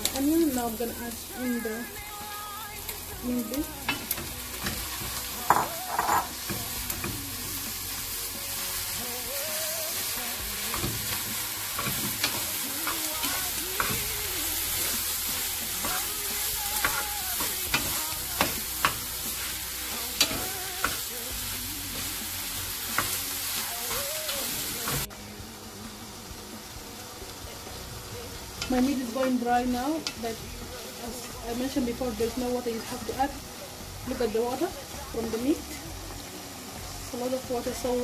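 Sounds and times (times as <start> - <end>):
meat sizzling in a pot: 0.0 - 38.0.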